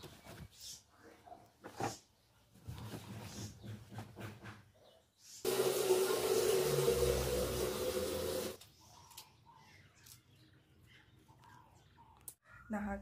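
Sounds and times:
water running hard: 5.5s - 8.6s.

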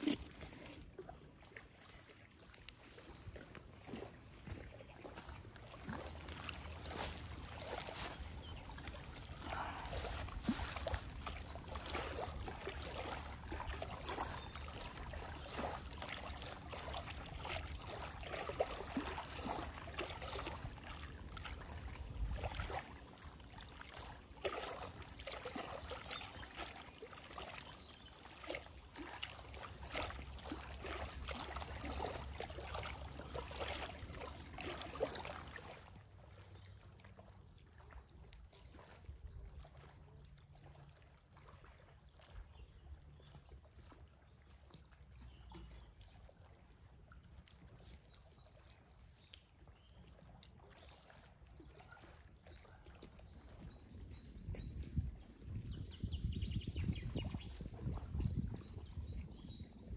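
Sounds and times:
waves lapping on stony shore: 0.0s - 35.9s.

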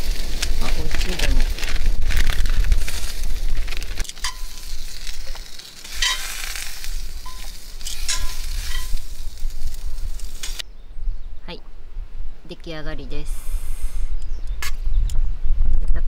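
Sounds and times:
beans sizzling in oil: 2.7s - 10.6s
metal tongs clinking: 5.9s - 6.4s, 7.3s - 9.0s.

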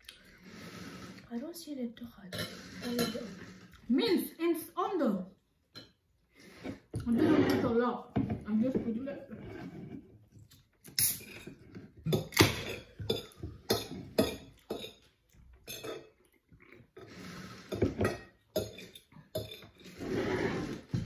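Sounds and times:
fork scraping ceramic plate: 2.3s - 3.9s, 6.5s - 7.8s, 17.0s - 21.0s.

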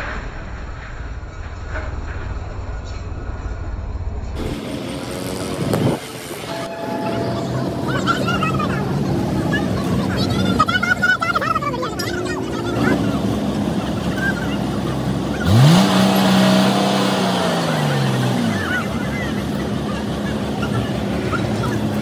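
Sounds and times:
heavy vehicle running: 0.0s - 22.0s
loud rising and falling tone: 2.6s - 9.1s.

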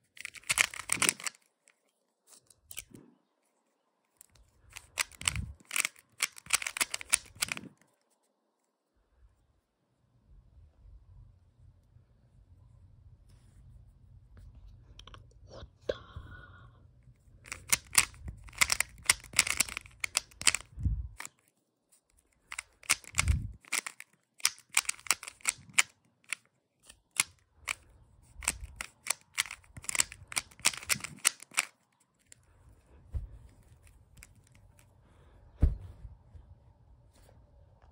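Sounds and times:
puzzle cube clicking: 0.0s - 1.8s, 4.2s - 7.9s, 17.4s - 21.5s, 22.1s - 32.4s, 33.8s - 34.8s
dull thumps: 35.6s - 36.1s.

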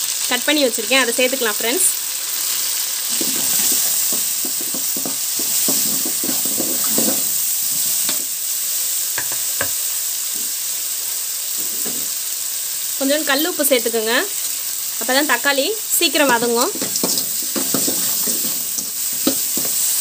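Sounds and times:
vegetables sizzling in hot oil: 0.0s - 20.0s
metal ladle scraping pan: 3.1s - 8.2s, 16.2s - 20.0s.

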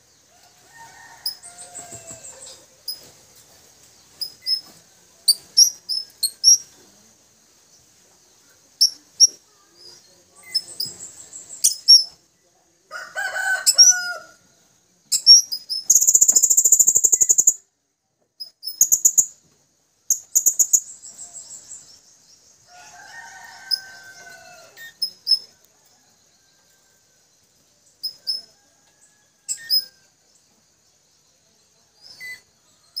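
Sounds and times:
buzzy bird trill: 15.1s - 17.6s, 20.1s - 21.9s.

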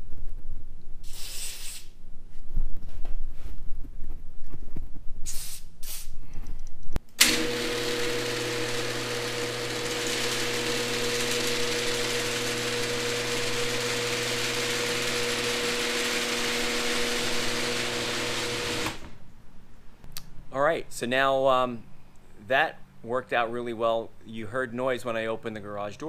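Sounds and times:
garage door opener humming: 7.1s - 19.2s.

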